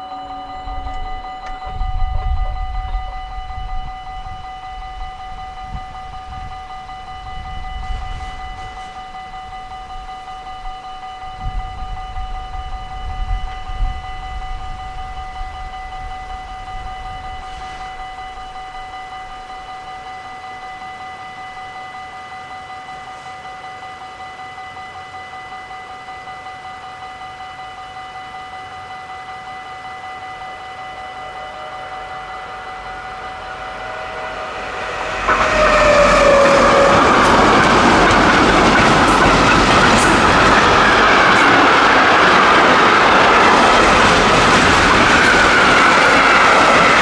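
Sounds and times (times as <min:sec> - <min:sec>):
level crossing bell ringing: 0:00.0 - 0:04.4, 0:30.7 - 0:44.5
freight train passing: 0:00.0 - 0:24.2, 0:28.3 - 0:47.0
rail clatter: 0:33.3 - 0:47.0.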